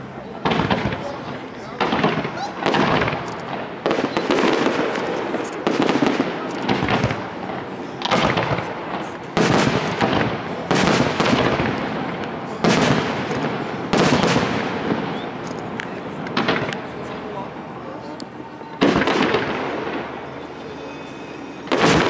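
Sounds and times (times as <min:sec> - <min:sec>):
firework shells bursting: 0:00.4 - 0:16.9.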